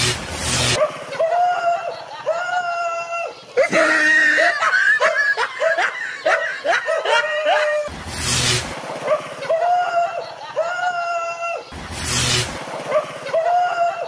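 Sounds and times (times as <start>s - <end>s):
high-pitched laughing and shrieking: 0.7s - 7.9s, 9.1s - 11.8s, 12.9s - 14.0s.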